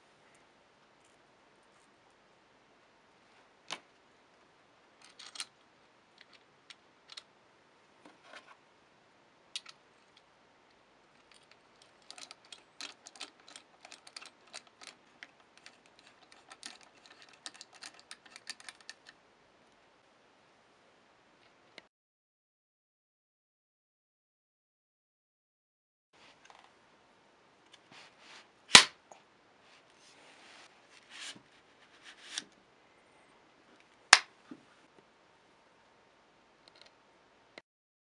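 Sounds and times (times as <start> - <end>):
small metal clicks: 5.0 - 5.5, 11.2 - 19.2.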